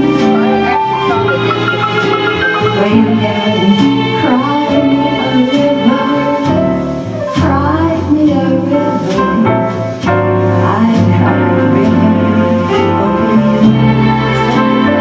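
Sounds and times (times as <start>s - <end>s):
person singing: 0.0s - 6.7s
karaoke backing music: 0.0s - 15.0s.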